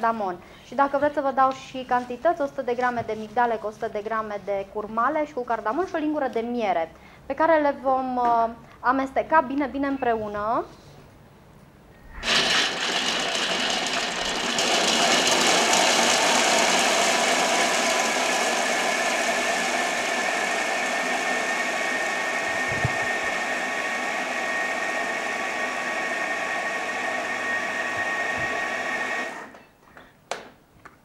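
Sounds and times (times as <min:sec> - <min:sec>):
food processor whining: 0:12.1 - 0:29.6.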